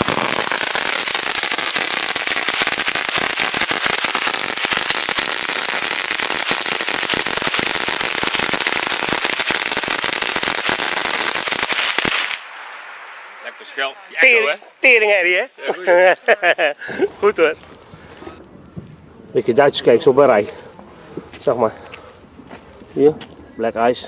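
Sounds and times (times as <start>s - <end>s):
firework rattle of rapid bangs: 0.0s - 13.0s.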